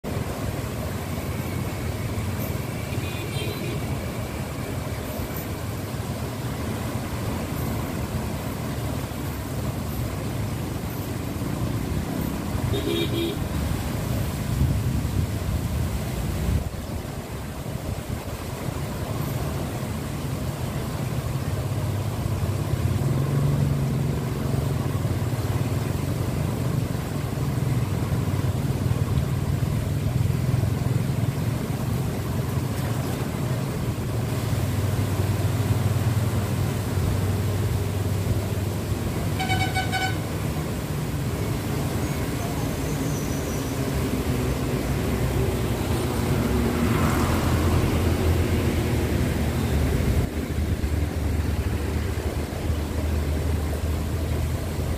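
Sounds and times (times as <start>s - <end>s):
road traffic rumble: 0.0s - 54.9s
vehicle horn toot: 2.9s - 3.8s, 12.7s - 13.4s, 39.3s - 40.3s.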